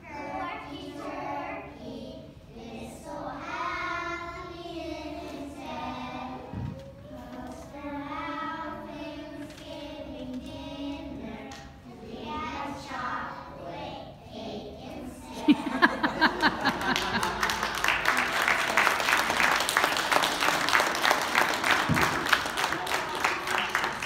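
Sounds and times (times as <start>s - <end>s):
children singing together: 0.0s - 17.6s.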